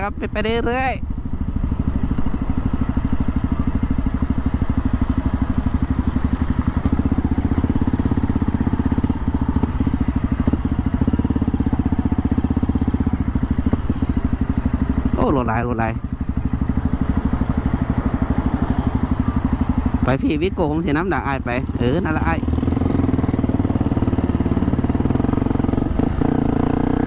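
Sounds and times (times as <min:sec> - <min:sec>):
dirt bike engine running: 0:00.0 - 0:27.0.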